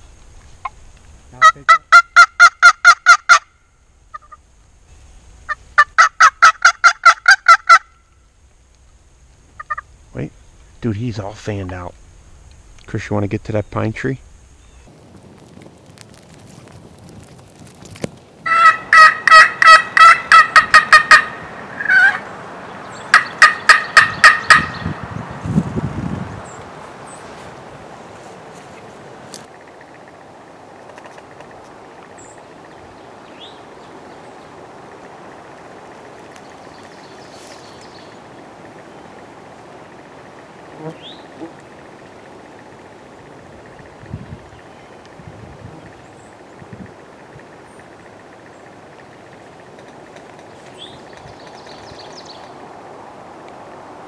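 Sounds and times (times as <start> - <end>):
turkey yelping: 1.4 - 3.4, 5.5 - 7.9, 9.6 - 9.8, 18.5 - 22.3, 23.1 - 24.9.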